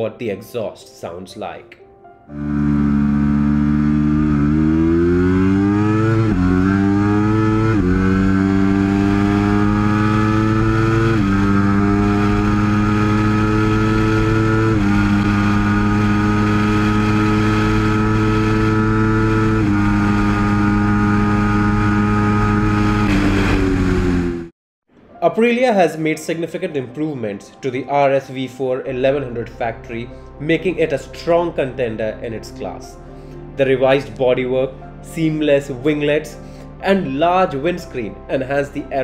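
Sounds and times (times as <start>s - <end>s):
motorcycle engine accelerating: 2.3s - 24.5s.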